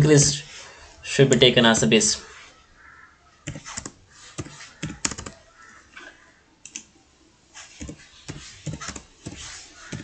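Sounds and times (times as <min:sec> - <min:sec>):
computer keyboard typing: 0:03.4 - 0:05.5, 0:07.7 - 0:10.0.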